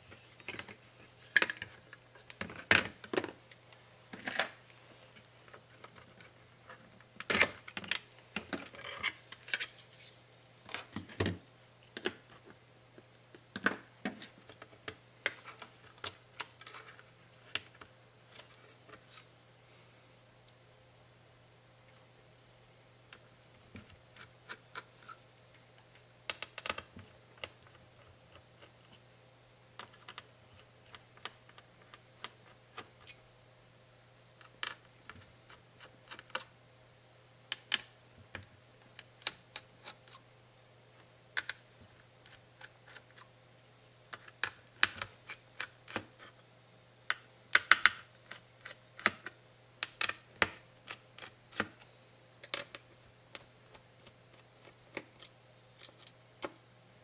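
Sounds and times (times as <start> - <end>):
laptop parts clicking and tapping: 26.3 - 28.7, 29.8 - 33.0, 47.1 - 51.8, 52.4 - 56.6.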